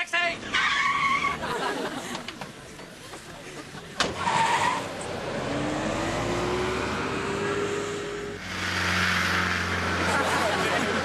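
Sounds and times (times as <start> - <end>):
tyre squeal: 0.4 - 1.4, 4.2 - 5.1
car engine accelerating: 4.6 - 11.0.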